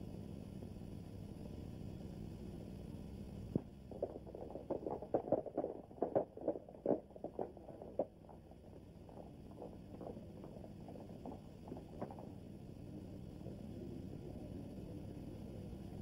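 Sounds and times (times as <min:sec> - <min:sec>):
old film soundtrack hum: 0:00.2 - 0:16.0
horses galloping on dirt: 0:03.9 - 0:12.3.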